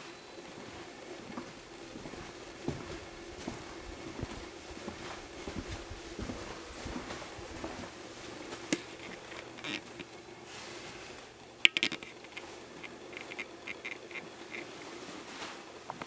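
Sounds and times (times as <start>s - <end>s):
footsteps: 0.0s - 16.0s
camera handling noise: 11.6s - 14.7s.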